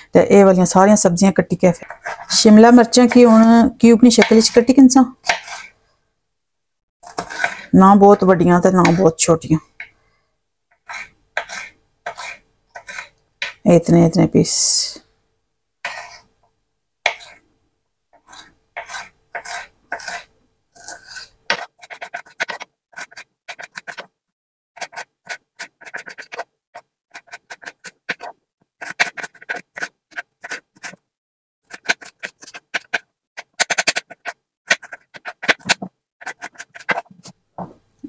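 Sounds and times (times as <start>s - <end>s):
knife chopping on wooden board: 4.2s - 4.6s, 5.2s - 5.7s, 31.7s - 37.2s.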